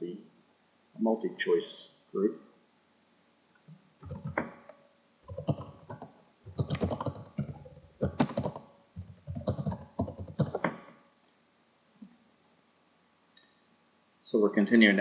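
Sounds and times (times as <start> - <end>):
typing on computer keyboard: 4.0 - 4.5, 5.3 - 10.8.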